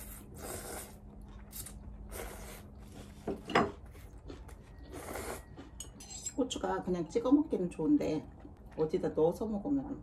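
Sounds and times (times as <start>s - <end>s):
person eating up close: 0.0s - 6.6s.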